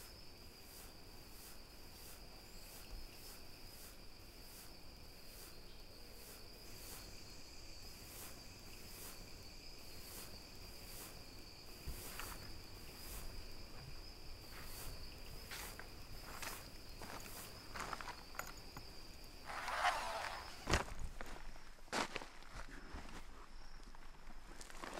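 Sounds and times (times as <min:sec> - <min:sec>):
insects chirping: 0:00.0 - 0:24.9
footsteps swishing through grass: 0:14.5 - 0:18.0.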